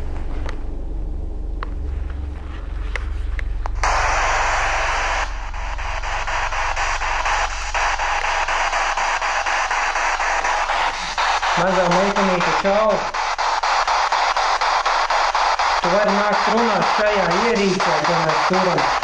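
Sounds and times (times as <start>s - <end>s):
choppy radio static hiss: 2.2s - 19.0s.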